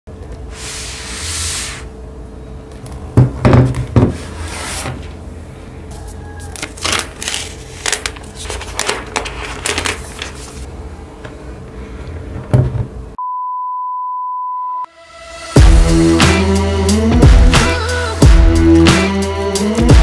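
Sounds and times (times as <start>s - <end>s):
plastic wrap crackling: 6.5s - 10.6s.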